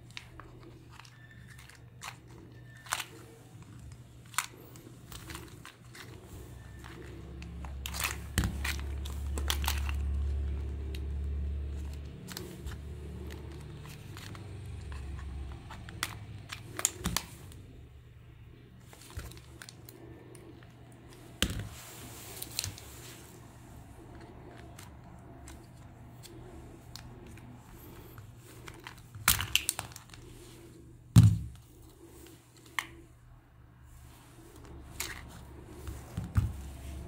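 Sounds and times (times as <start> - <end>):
rustling and scraping plastic: 0.0 - 17.8, 18.8 - 33.2, 33.8 - 37.0
tool and plastic clicks: 11.8 - 17.6.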